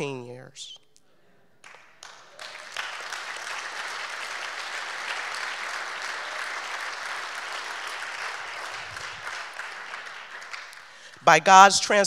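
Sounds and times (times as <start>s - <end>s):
audience applauding: 1.6s - 11.5s.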